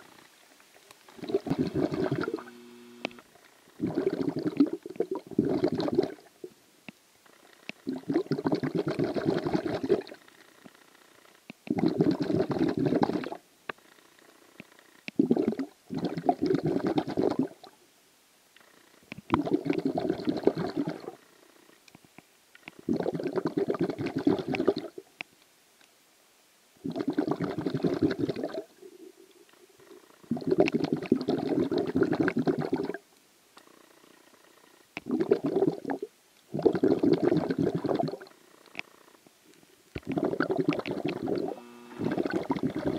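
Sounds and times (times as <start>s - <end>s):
underwater breathing bubbles: 1.2s - 2.7s, 3.8s - 6.3s, 7.8s - 10.2s, 22.9s - 24.9s, 26.9s - 28.7s, 35.0s - 38.3s, 40.0s - 42.9s.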